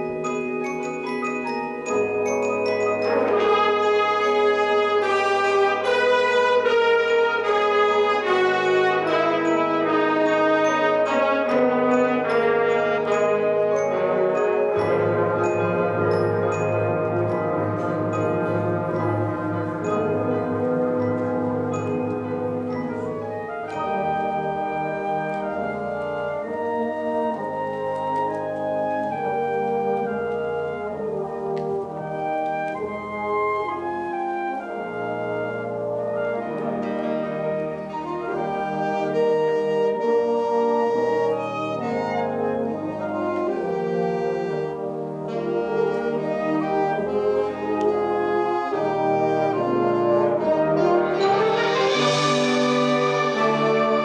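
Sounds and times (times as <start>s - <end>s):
wind ensemble playing chords: 0.0s - 54.0s.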